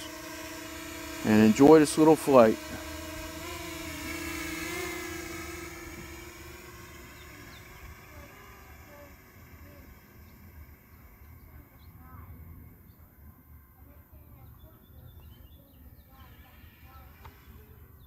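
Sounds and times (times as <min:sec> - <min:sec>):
drone propellers humming: 0:00.0 - 0:18.0
faint bird chirps: 0:14.1 - 0:18.0.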